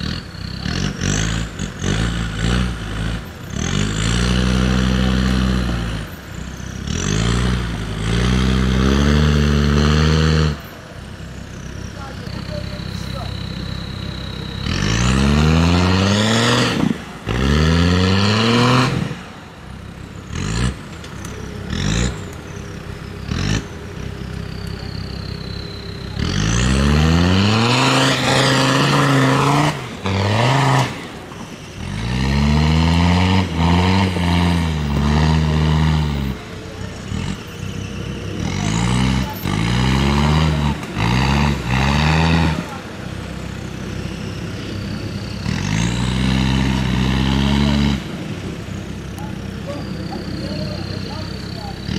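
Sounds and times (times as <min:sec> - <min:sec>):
diesel engine revving hard: 0:00.0 - 0:51.9.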